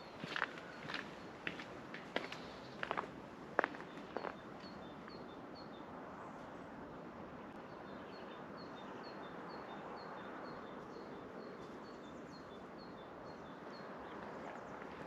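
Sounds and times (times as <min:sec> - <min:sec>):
steady background noise: 0:00.0 - 0:10.5.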